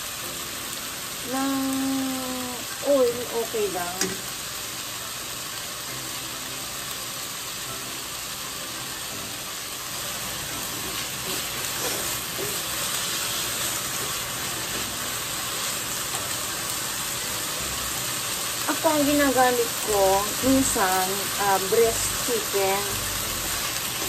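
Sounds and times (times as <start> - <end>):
chicken sizzling in frying pan: 0.0 - 24.0
chopsticks stirring: 10.7 - 16.3.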